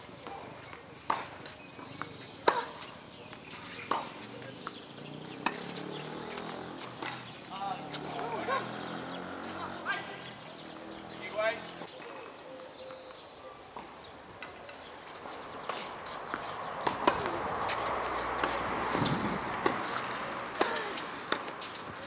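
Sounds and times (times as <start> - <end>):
tennis balls bouncing and struck: 0.1 - 11.9, 13.8 - 22.0.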